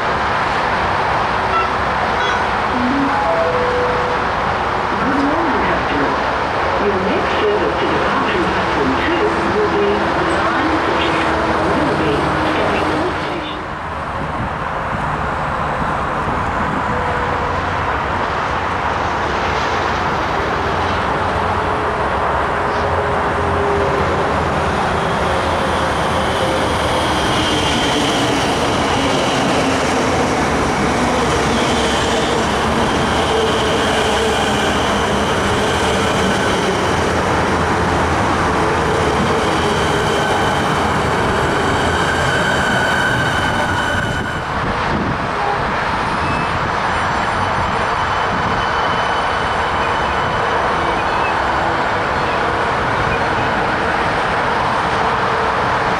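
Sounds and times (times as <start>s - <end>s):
electric train passing: 0.0s - 55.9s
train whining tones: 1.4s - 6.1s, 24.9s - 44.7s.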